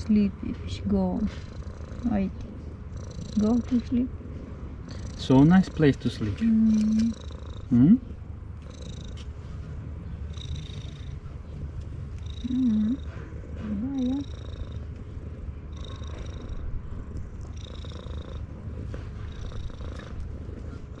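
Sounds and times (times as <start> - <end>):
cat purring loudly: 0.0 - 21.0
person humming: 12.4 - 13.0.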